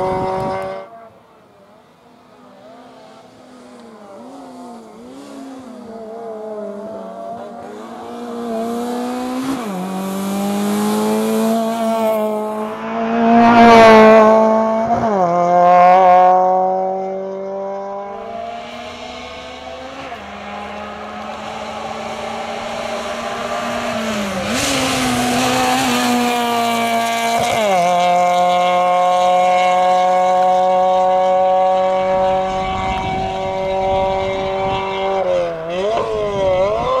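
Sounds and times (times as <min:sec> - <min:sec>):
tyre and wind noise: 0:00.0 - 0:00.9, 0:31.9 - 0:37.0
car engine revving hard: 0:02.8 - 0:37.0.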